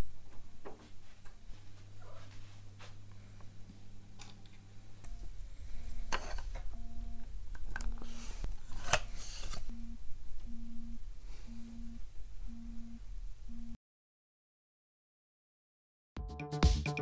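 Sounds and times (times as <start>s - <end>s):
scraping handling noises: 5.9s - 6.7s
smartphone alarm beeping: 6.7s - 8.4s, 9.7s - 13.8s.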